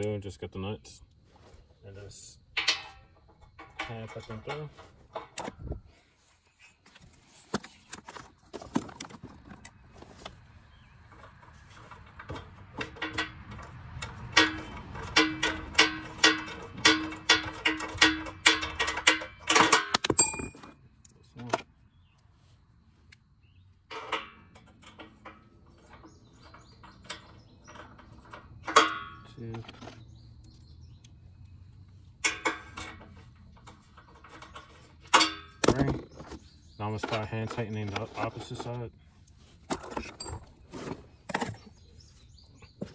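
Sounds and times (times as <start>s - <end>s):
metal nuts clicking and clinking: 11.3s - 21.1s, 32.2s - 35.8s
metal knocks with ring: 19.6s - 20.7s.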